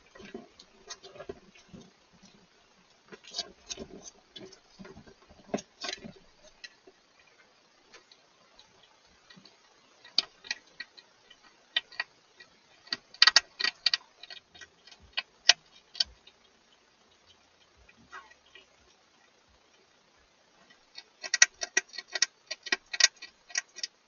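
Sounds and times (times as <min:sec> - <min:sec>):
hedgehog chewing with sharp clicks: 0:00.1 - 0:19.9, 0:20.5 - 0:24.0.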